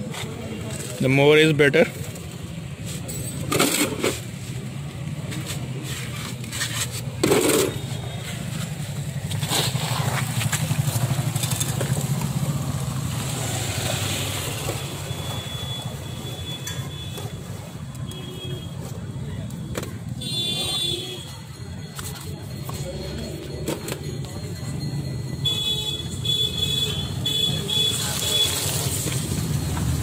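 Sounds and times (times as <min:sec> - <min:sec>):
metal parts scraping and knocking: 0:05.9 - 0:08.6.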